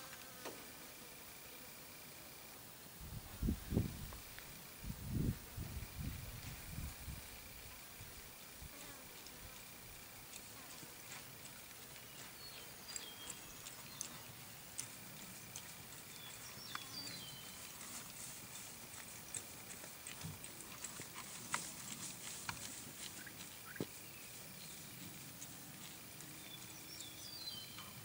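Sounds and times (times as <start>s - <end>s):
hooves on grass: 5.6s - 27.8s.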